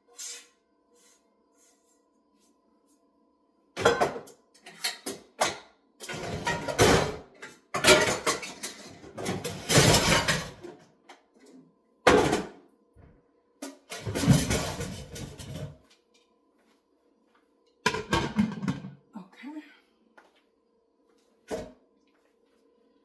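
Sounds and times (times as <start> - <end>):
dishes clattering in sink: 3.8 - 10.8, 12.1 - 12.6, 13.6 - 15.8, 17.8 - 19.0.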